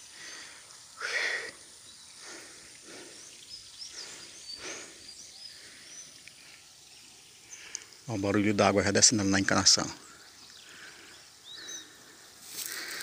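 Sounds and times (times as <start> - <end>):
small birds chirping: 0.0 - 13.0
footsteps through dry grass: 12.3 - 13.0.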